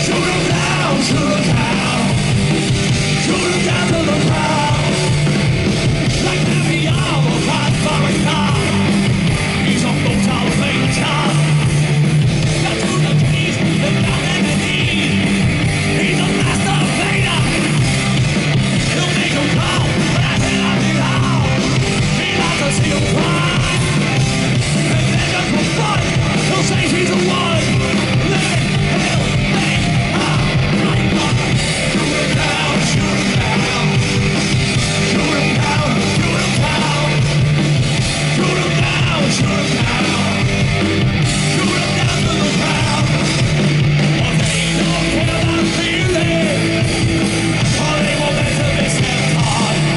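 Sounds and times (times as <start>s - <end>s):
heavy metal band playing: 0.0s - 49.9s.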